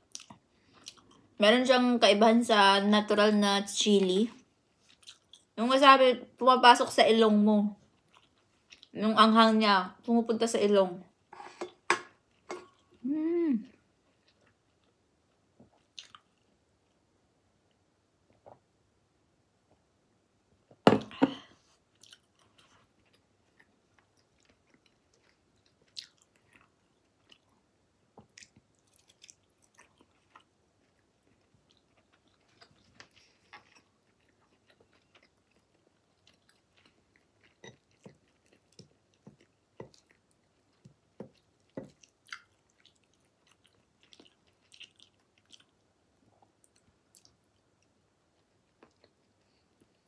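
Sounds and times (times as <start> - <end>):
person chewing and smacking: 4.8 - 5.5, 7.9 - 9.0, 14.1 - 17.0, 21.9 - 50.0.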